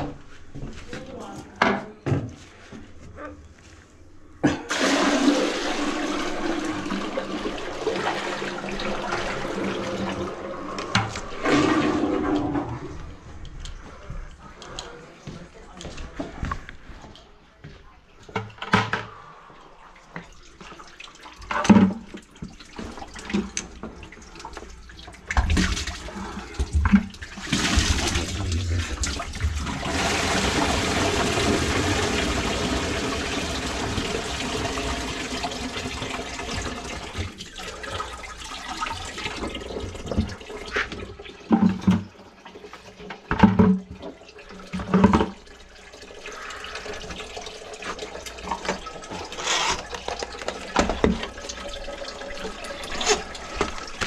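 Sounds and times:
water rushing like toilet flush: 4.4s - 13.3s, 19.8s - 54.0s.

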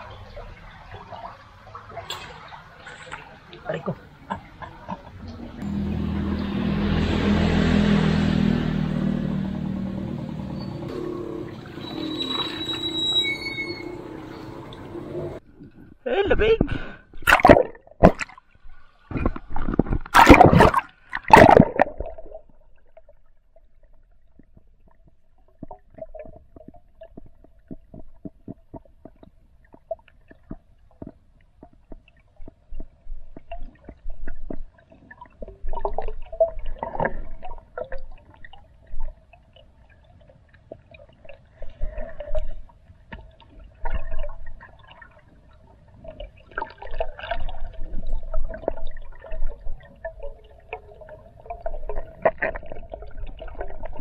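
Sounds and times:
steady underwater hum: 0.0s - 54.0s
bubbling gurgles: 17.2s - 18.4s, 19.1s - 40.1s, 43.3s - 54.0s
water splashing loudly: 17.2s - 18.4s, 20.0s - 22.4s
faint underwater clicks: 23.8s - 44.7s.

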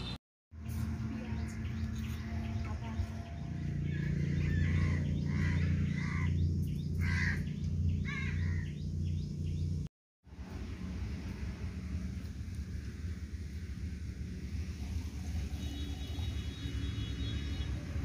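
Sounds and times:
low rumble of outdoor noise: 0.0s - 18.0s
bird calling: 2.0s - 9.7s.

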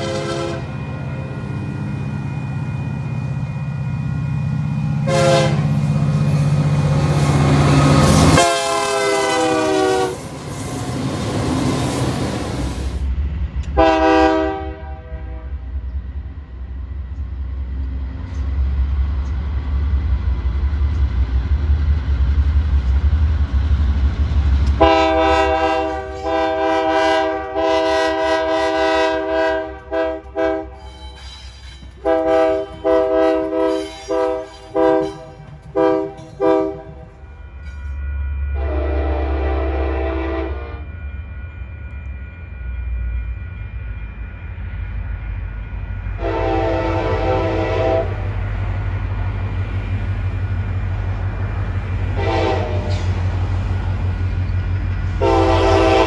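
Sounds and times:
locomotive horn chord blasts: 0.0s - 0.8s, 5.0s - 5.8s, 8.2s - 10.3s, 13.8s - 15.6s, 24.8s - 30.9s, 32.0s - 37.1s, 38.6s - 40.9s, 46.2s - 48.3s, 52.1s - 53.1s, 55.2s - 56.0s.

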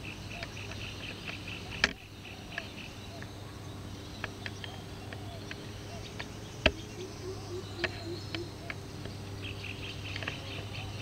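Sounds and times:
low steady hum: 0.0s - 11.0s
rapid pulsing chirping: 0.0s - 11.0s.

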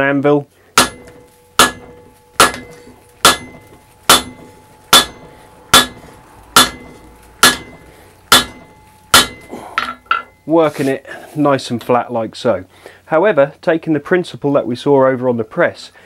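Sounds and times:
hammer striking hot steel on anvil: 0.8s - 10.4s.

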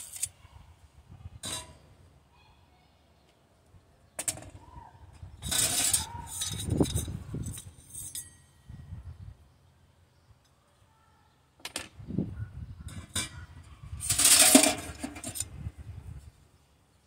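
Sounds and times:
sheet metal pieces clinking: 5.4s - 8.6s.

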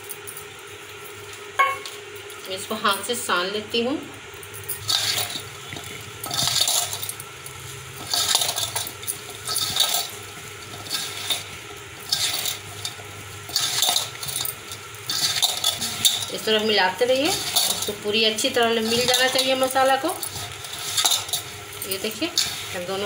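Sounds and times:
glass bangles clinking: 1.6s - 1.8s
hands tossing fruit in steel bowl: 8.0s - 23.0s.

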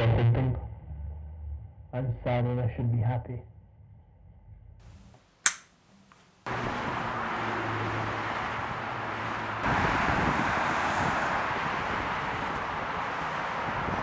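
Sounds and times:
road traffic passing: 4.9s - 14.0s
sharp click: 5.5s - 6.2s.

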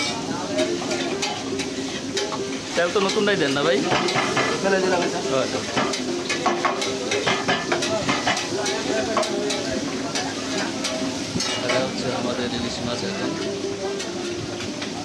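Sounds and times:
fish sizzling in oil: 0.0s - 15.0s
spatula clicking and scraping pan: 3.0s - 11.8s.

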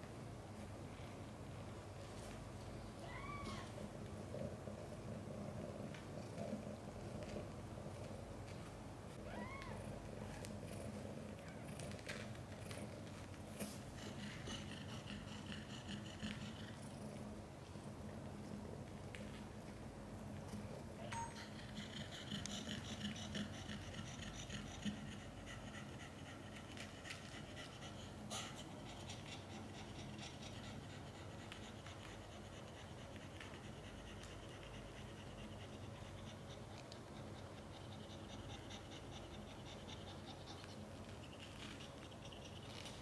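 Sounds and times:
cat panting: 10.5s - 43.0s.

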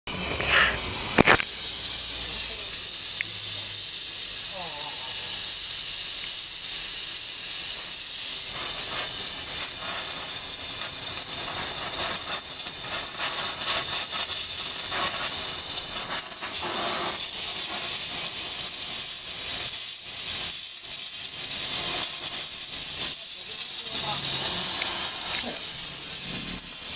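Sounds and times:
brazing torch flame hissing: 0.2s - 26.9s.

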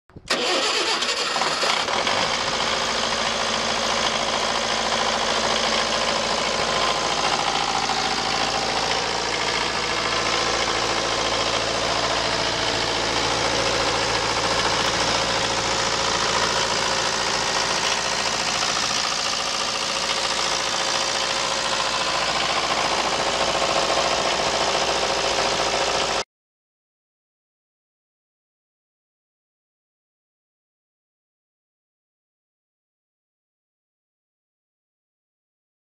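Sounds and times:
diesel generator running: 0.3s - 26.2s.

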